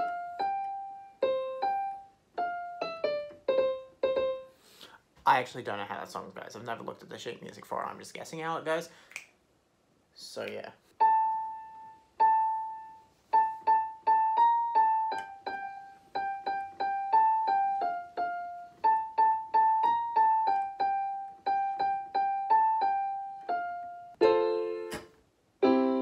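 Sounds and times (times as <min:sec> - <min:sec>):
piano chords: 0:00.0 - 0:04.7, 0:11.0 - 0:26.0
keyboard piano melody: 0:00.0 - 0:04.8, 0:11.0 - 0:26.0.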